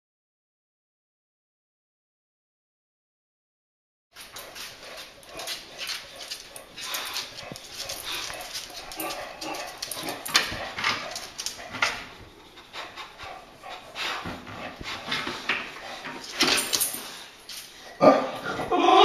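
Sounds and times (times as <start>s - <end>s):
dog breathing hard: 4.2s - 18.5s
dog whining: 18.0s - 19.0s.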